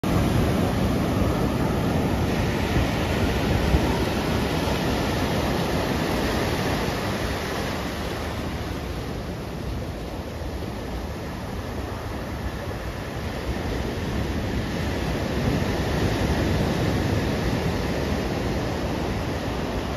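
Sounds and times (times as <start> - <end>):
ocean surf breaking: 0.0 - 19.9.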